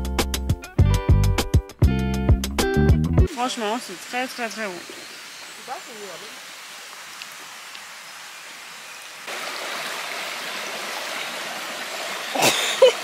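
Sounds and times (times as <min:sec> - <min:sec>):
river water rushing: 0:03.3 - 0:13.0.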